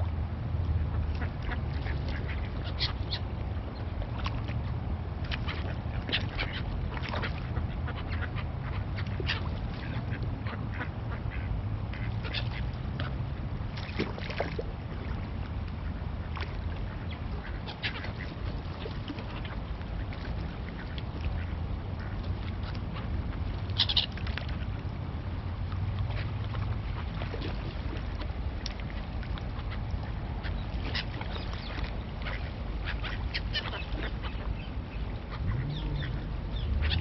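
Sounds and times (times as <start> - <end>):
steady low rumble: 0.0 - 37.0
ducks quacking: 0.8 - 3.2, 5.4 - 13.2, 29.6 - 37.0.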